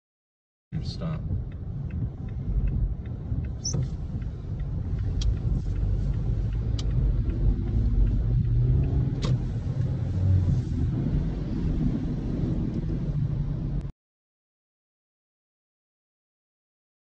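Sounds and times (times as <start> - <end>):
wind and rain rumble in car: 0.8 - 13.9
sharp clicks: 1.5 - 9.9.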